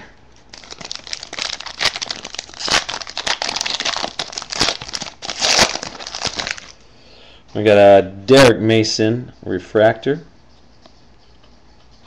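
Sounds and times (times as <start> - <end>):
foil wrapper crinkling: 0.5 - 6.8.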